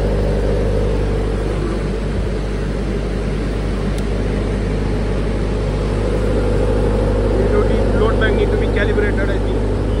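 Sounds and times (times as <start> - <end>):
diesel generator running: 0.0 - 10.0
small click: 3.9 - 4.1.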